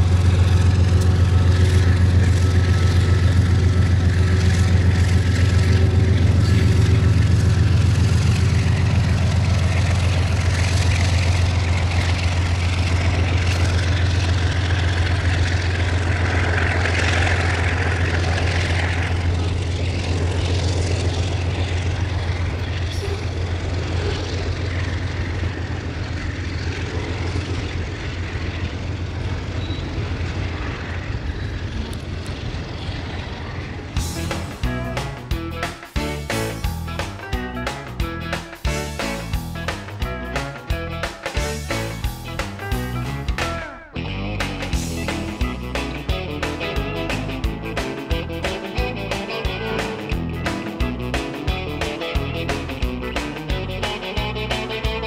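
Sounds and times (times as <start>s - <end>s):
diesel locomotive drone: 0.0s - 55.0s
train wagons rolling: 0.0s - 55.0s.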